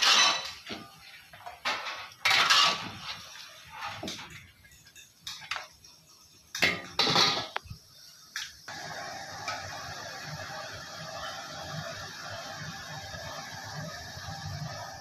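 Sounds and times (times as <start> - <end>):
metal skimmer scraping iron pan: 0.0 - 0.6, 1.6 - 5.6.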